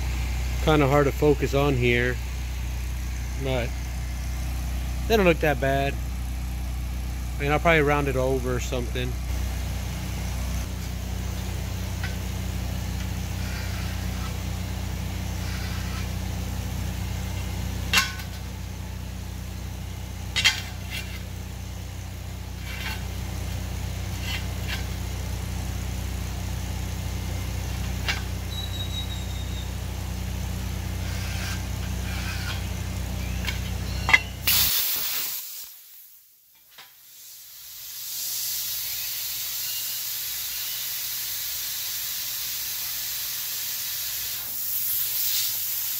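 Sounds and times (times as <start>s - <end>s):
low machine hum: 0.0s - 34.7s
plasma cutter hissing: 34.1s - 36.2s, 37.0s - 45.9s.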